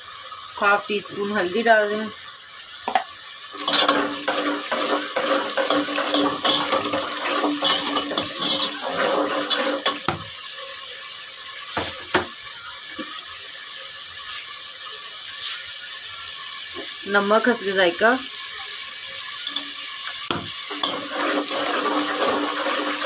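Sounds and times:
sauce bubbling and sizzling: 0.0s - 23.0s
metal spoon scraping a pot: 3.6s - 10.2s, 20.6s - 23.0s
spoon knocking against pot: 10.0s - 10.3s, 20.3s - 20.6s.

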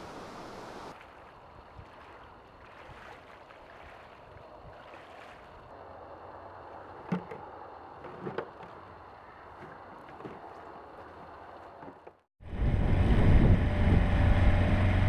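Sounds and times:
outdoor background hiss: 0.0s - 12.2s
person wading in shallow water: 0.8s - 12.0s.

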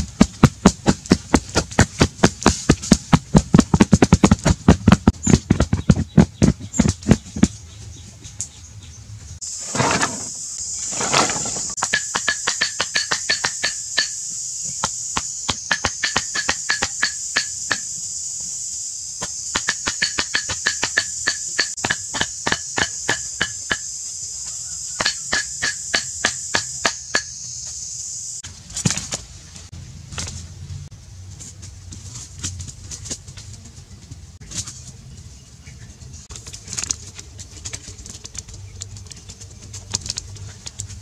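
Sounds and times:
high-pitched insect buzz: 9.4s - 28.4s.

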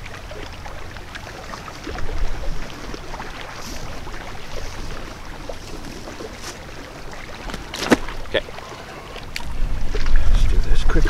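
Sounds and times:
river water rushing: 0.0s - 9.9s
handling clicks and rustles: 7.4s - 8.4s
wind on microphone: 9.2s - 11.0s.

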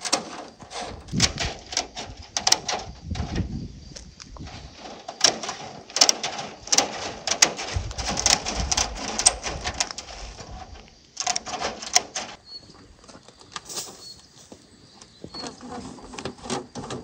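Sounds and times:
wire mesh rattling: 0.0s - 3.5s, 4.4s - 12.4s
bird chirps: 12.4s - 16.9s.

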